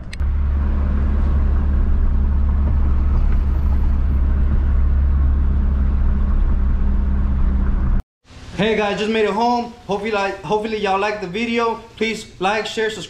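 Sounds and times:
car engine rumble: 0.0s - 8.0s
road noise inside car: 0.0s - 8.0s.

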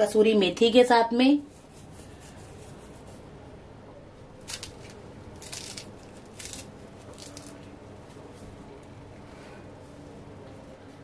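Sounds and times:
herbs rustling: 4.4s - 8.9s.

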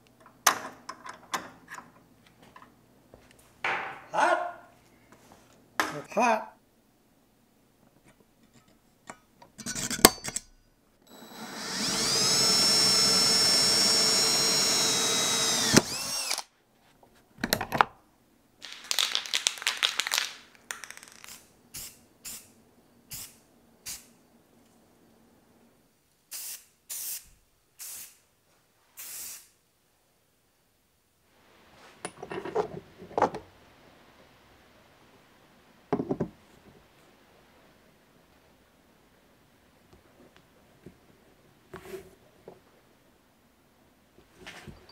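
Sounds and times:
electric drill whining: 11.1s - 16.5s.

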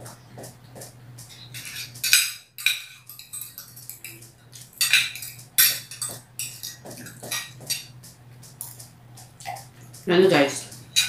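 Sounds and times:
cutlery clinking on glass plates: 1.3s - 8.0s.

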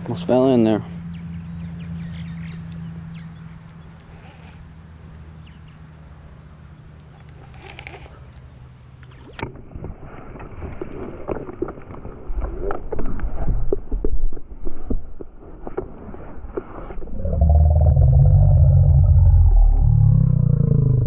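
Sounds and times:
camera handling noise: 7.0s - 9.4s
faint low hum: 17.0s - 21.0s.

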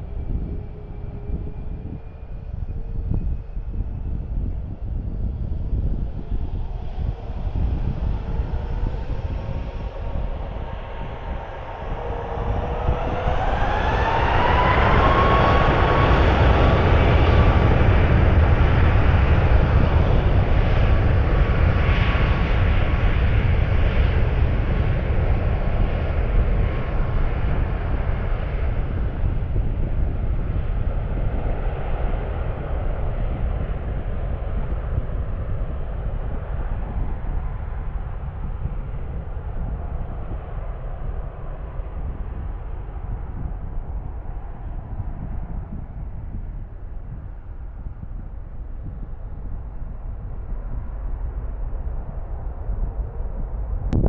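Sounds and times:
jet engines spooling up: 7.0s - 19.7s.

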